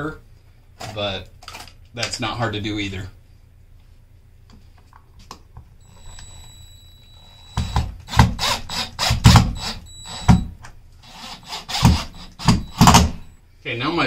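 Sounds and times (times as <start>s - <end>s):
cordless drill driving screw: 7.2s - 10.4s, 11.0s - 13.3s.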